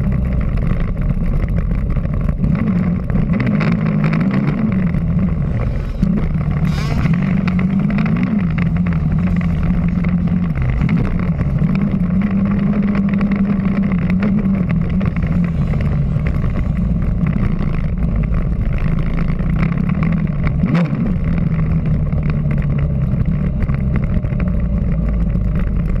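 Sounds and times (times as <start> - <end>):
dirt bike engine revving: 2.4 - 17.9.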